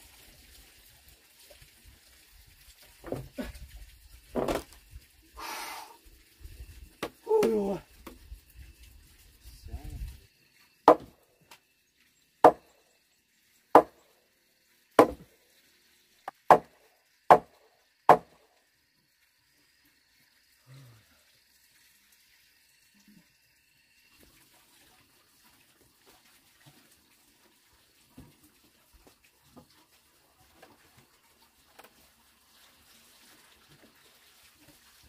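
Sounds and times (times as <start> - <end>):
tool striking wooden poles: 10.8 - 11.2, 12.4 - 12.7, 13.8 - 14.0, 15.0 - 15.3, 16.3 - 18.4.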